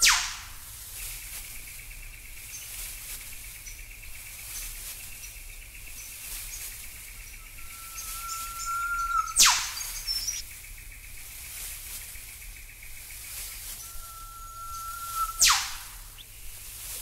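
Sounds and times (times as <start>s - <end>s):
faint bird chirps: 0.0s - 0.3s, 0.9s - 17.0s
high trilling buzz: 0.0s - 0.3s, 7.3s - 10.4s, 13.5s - 16.2s
bird whistle note: 0.0s - 0.4s, 7.3s - 10.4s, 13.8s - 16.2s.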